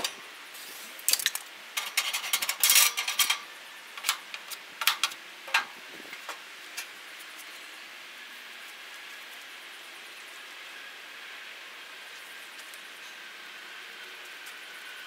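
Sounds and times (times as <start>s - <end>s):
grill tool scraping metal grate: 0.0s - 5.7s.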